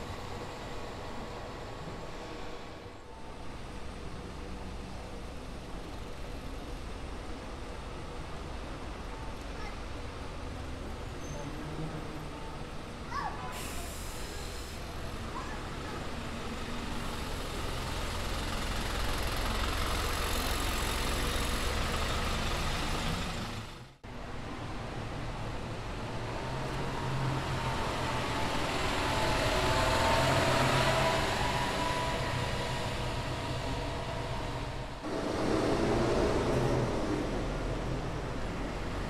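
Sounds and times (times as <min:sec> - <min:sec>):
bus engines running: 0:00.0 - 0:39.0.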